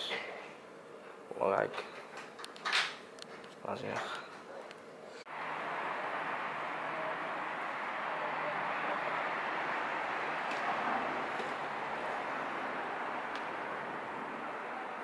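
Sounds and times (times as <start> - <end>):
rushing street noise: 5.3 - 15.0.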